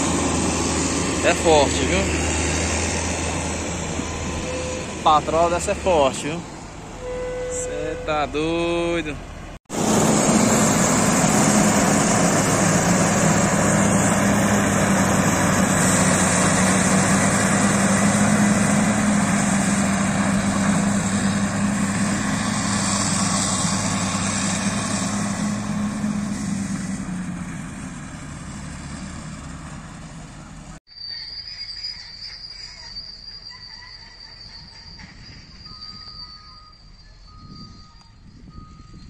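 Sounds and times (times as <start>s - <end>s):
diesel engine low hum: 0.0s - 30.8s, 35.3s - 39.0s.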